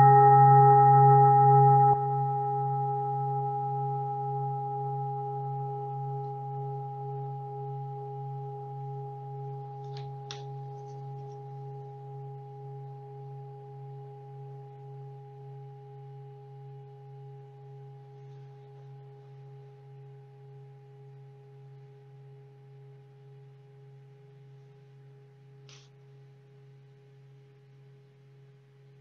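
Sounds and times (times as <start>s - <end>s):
singing bowl ringing: 0.0s - 17.3s.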